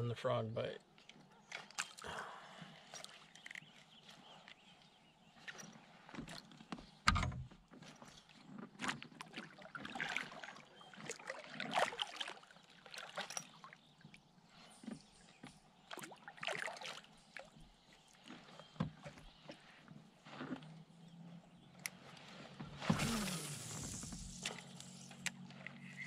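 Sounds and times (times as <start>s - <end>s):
paddle splashing in water: 8.6s - 13.8s, 15.8s - 25.9s.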